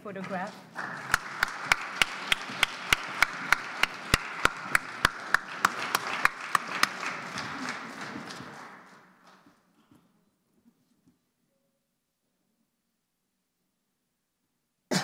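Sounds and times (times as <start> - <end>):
sharp close claps: 0.2 - 9.6
audience applause: 0.8 - 9.4.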